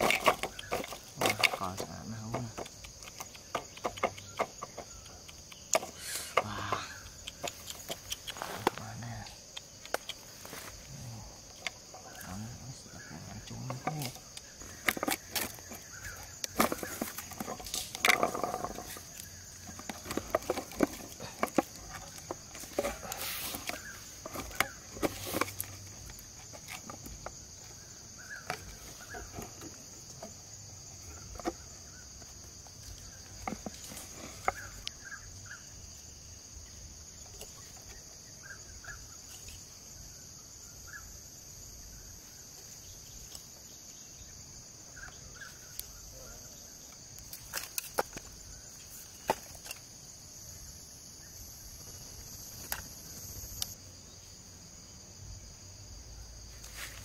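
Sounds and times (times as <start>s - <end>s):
hands working bamboo sticks: 0.0s - 35.4s, 46.8s - 50.0s
insects droning: 0.0s - 57.0s.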